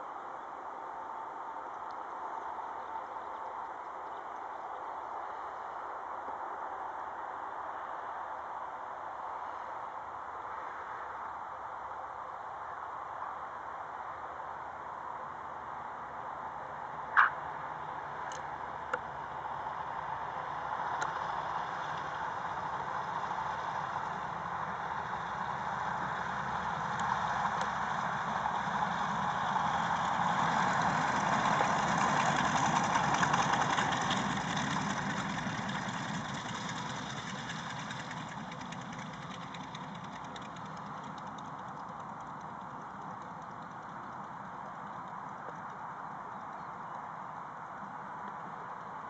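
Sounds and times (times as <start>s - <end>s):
propeller plane engines: 14.4s - 49.0s.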